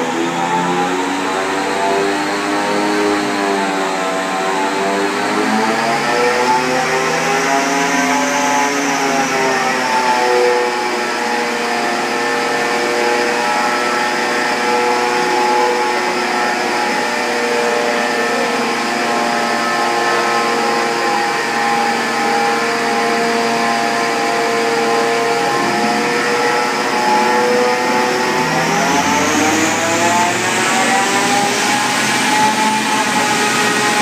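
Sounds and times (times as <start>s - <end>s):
dyno rollers and tyres noise: 0.0s - 34.0s
car engine under load: 22.0s - 34.0s.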